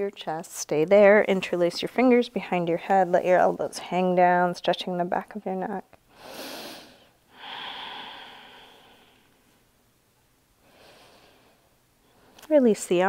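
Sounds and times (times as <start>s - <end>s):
woman breathing: 6.1s - 9.6s, 10.6s - 12.4s.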